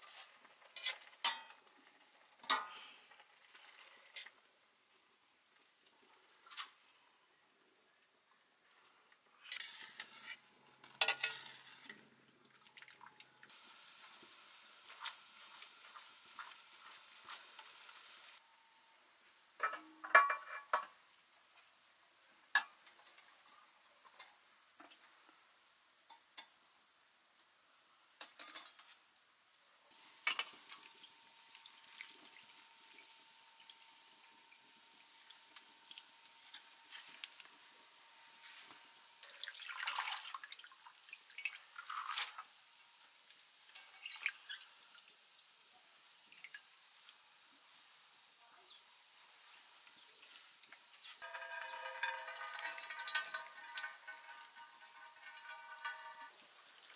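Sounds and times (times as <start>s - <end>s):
metal cookware clinking: 0.7s - 1.7s, 9.5s - 11.9s, 19.6s - 21.0s, 51.0s - 56.9s.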